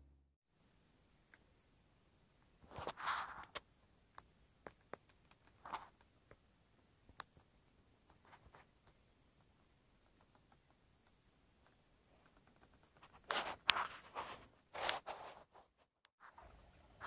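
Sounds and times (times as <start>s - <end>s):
faint clicks: 7.1s - 13.8s.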